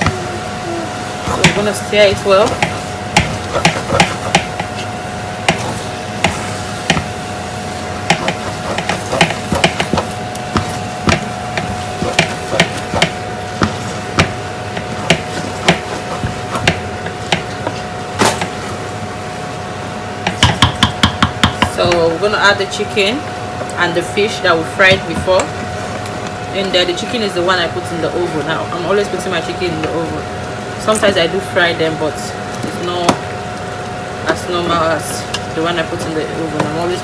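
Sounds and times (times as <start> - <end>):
faint hum: 0.0 - 37.0
wooden spoon knocking metal pot: 8.0 - 14.4, 20.2 - 22.1.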